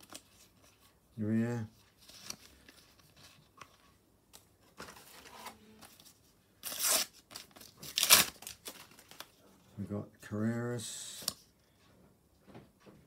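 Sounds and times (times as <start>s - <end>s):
sticker packet tearing: 6.6s - 9.3s.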